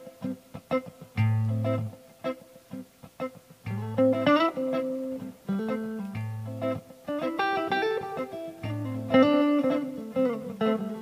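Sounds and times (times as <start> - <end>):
clean electric guitar playing: 0.0 - 11.0.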